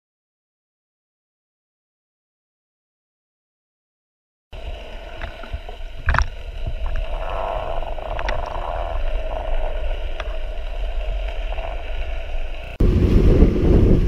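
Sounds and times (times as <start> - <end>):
muffled underwater rumble: 4.6 - 14.0
sharp clicks underwater: 5.0 - 10.4.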